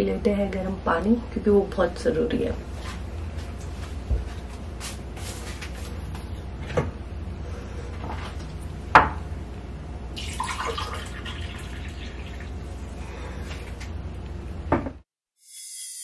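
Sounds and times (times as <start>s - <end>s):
water pouring into a glass: 10.2s - 12.6s.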